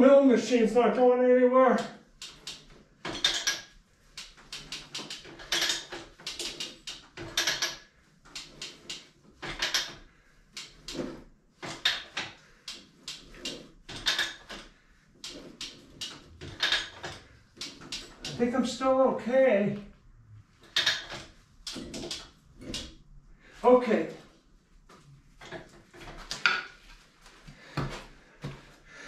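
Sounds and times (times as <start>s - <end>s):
lever clacking: 1.7s - 10.0s, 10.6s - 18.5s, 20.6s - 23.0s
metal ratchet clicks: 1.8s - 10.0s, 15.2s - 18.4s, 20.6s - 22.9s.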